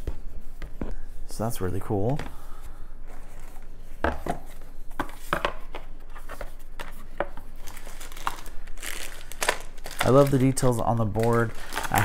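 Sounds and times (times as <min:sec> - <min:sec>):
packaging crinkling: 0:06.8 - 0:12.0.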